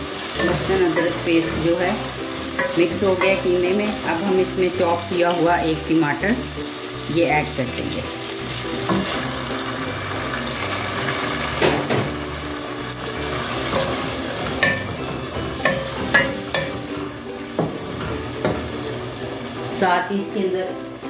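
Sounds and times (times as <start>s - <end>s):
meat sizzling in a pot: 0.0s - 21.0s
wooden spoon knocking on pot: 0.4s - 3.8s, 8.8s - 9.3s, 13.6s - 16.9s, 17.5s - 18.8s.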